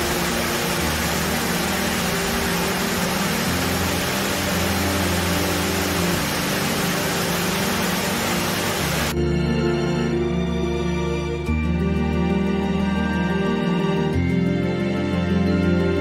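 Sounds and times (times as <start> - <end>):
waterfall rushing: 0.0 - 9.1.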